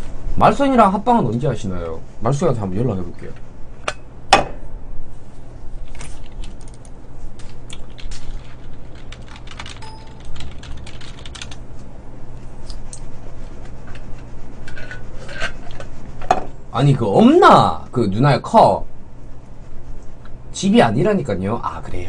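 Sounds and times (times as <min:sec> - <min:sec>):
computer keyboard typing: 0:06.2 - 0:11.6.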